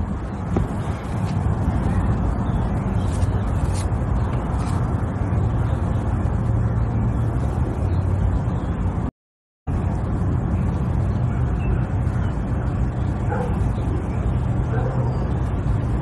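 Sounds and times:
steady low rumble: 0:00.0 - 0:09.1, 0:09.7 - 0:16.0.

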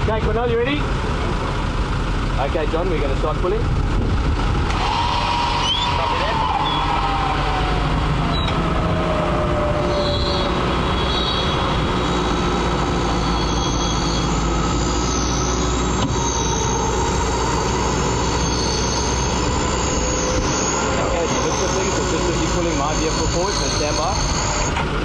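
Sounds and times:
vehicle engine running: 0:00.0 - 0:25.0
winch whining under load: 0:04.1 - 0:25.0.

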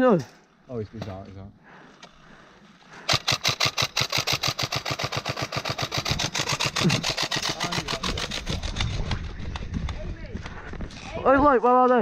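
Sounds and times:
airsoft rifle firing: 0:03.1 - 0:09.2.

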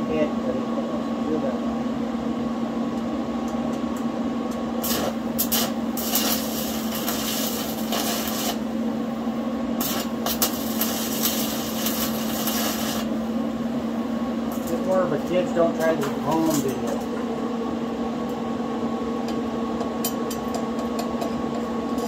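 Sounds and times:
steady hum: 0:00.0 - 0:22.0
welding arc crackling: 0:04.8 - 0:08.8, 0:09.7 - 0:13.3.

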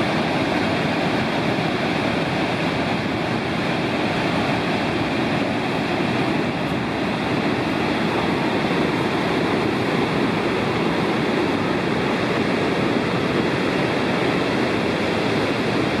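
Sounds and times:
rush of falling water: 0:00.0 - 0:16.0.

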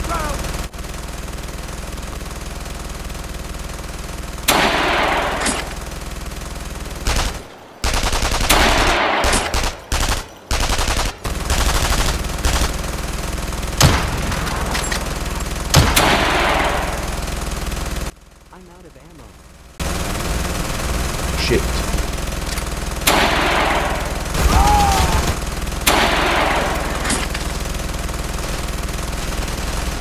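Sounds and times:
rapid machine-gun fire: 0:00.0 - 0:18.2, 0:19.4 - 0:30.0
single gunshots: 0:04.5 - 0:05.8, 0:07.0 - 0:12.6, 0:23.0 - 0:27.3.

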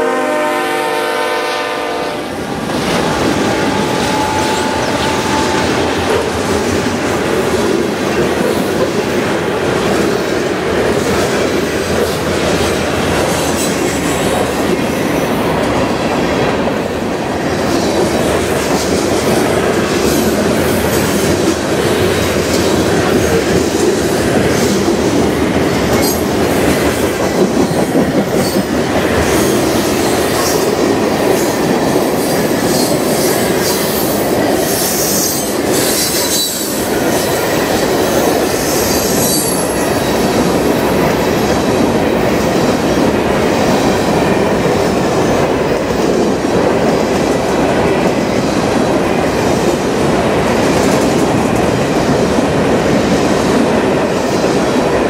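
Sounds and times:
train wheels rumbling on rail: 0:00.0 - 0:55.0
high-pitched wheel squeals: 0:02.5 - 0:06.2, 0:34.8 - 0:36.8, 0:38.8 - 0:39.8.

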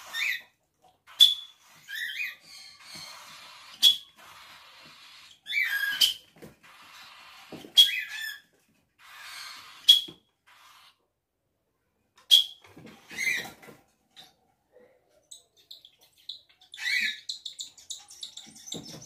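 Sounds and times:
parakeet chirps: 0:15.2 - 0:19.0.

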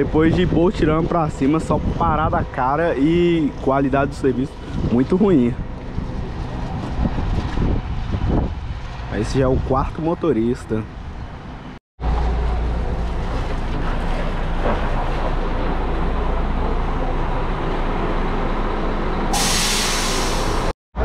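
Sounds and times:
coach engine rumbling: 0:00.0 - 0:21.0
air brake hiss: 0:19.3 - 0:20.7.

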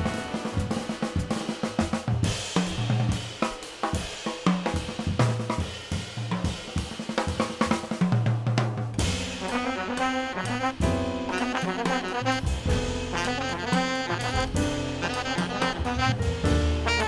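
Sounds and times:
jazz drum kit playing: 0:00.0 - 0:17.0
double bass notes: 0:09.2 - 0:17.0.

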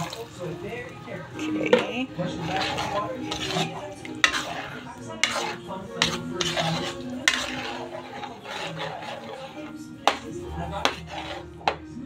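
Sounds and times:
metal spatula scraping a pan: 0:00.0 - 0:12.0
spatula knocking against pan: 0:10.0 - 0:11.8.

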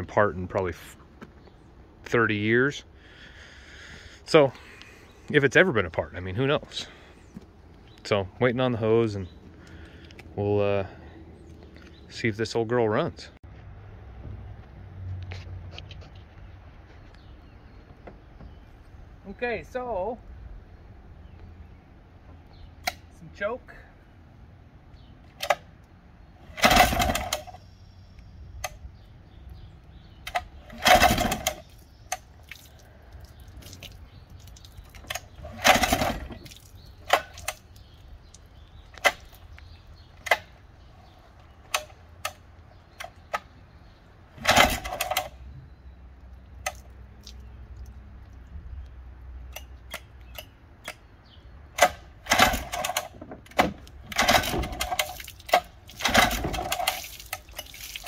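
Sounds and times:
outboard motor cranking: 0:26.5 - 0:27.6, 0:30.2 - 0:32.2, 0:35.0 - 0:38.0, 0:44.4 - 0:45.5, 0:51.8 - 0:58.0.

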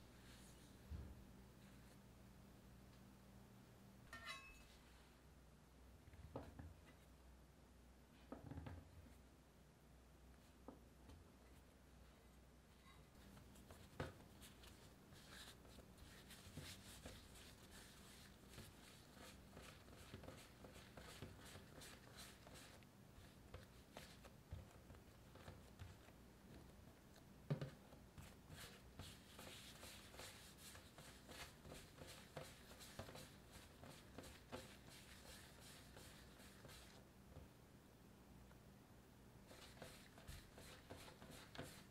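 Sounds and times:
hands scuffing dough on countertop: 0:13.2 - 0:37.5, 0:39.5 - 0:41.9.

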